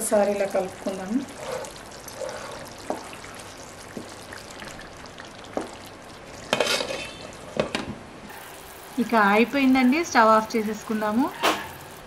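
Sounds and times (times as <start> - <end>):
curry simmering and sizzling: 0.0 - 12.0
wooden spatula stirring: 0.5 - 7.3.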